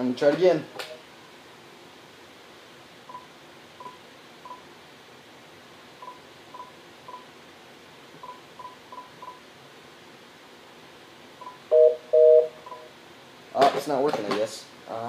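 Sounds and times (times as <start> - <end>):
phone keypad beeps: 11.4 - 12.9.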